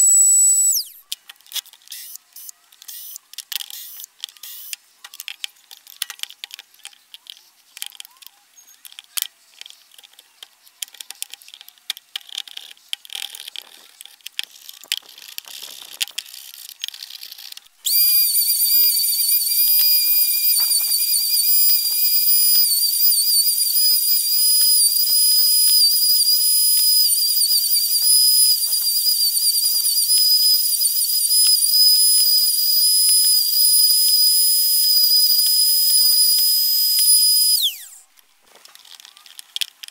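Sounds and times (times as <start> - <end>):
router whining: 17.8 - 38.0.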